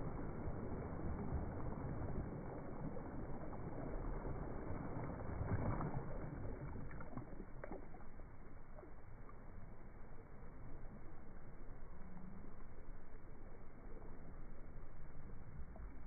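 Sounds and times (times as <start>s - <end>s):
small waves lapping on sand: 0.0s - 8.1s.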